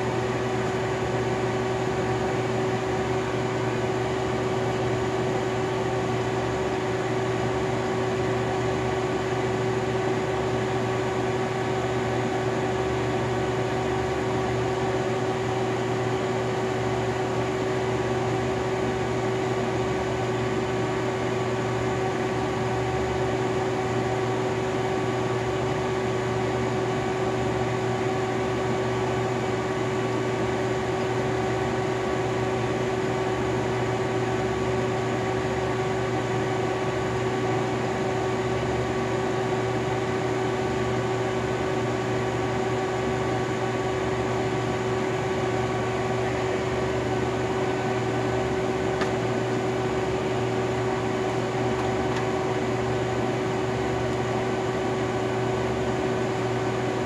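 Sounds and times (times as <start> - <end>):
vacuum pump humming: 0.0 - 57.0.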